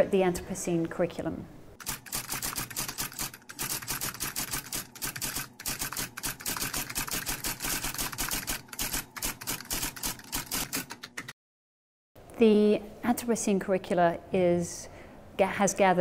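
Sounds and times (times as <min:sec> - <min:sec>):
typewriter keys clacking: 0:01.8 - 0:11.3.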